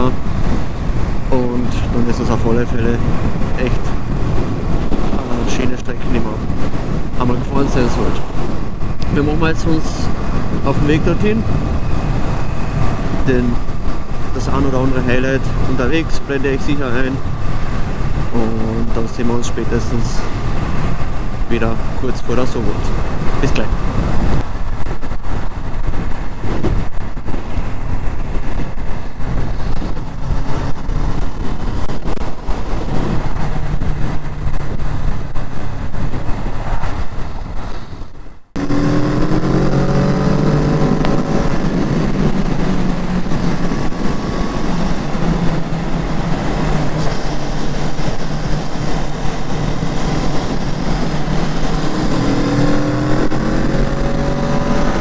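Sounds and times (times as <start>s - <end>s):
rushing wind noise: 0.0s - 55.0s
motorcycle engine revving: 38.6s - 55.0s.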